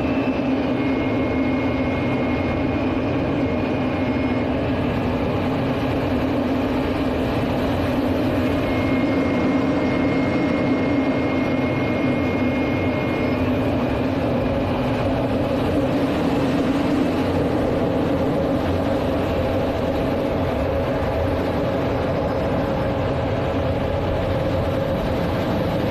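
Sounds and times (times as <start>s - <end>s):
faint high whistle: 0.0s - 2.4s, 8.5s - 13.3s
jet engine hum: 0.0s - 25.9s.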